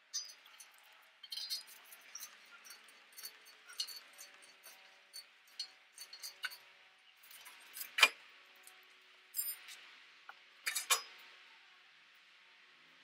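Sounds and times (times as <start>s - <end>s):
hand tools clinking on metal: 0.1s - 6.6s, 9.4s - 9.8s, 10.6s - 11.2s.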